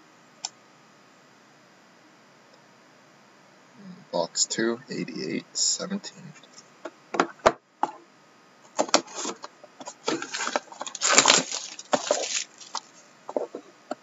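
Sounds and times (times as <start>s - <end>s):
cardboard scraping and rustling: 8.8s - 13.6s.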